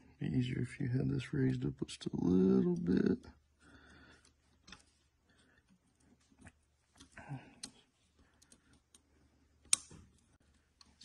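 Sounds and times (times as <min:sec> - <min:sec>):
small metal clicks and taps: 0:09.6 - 0:10.2.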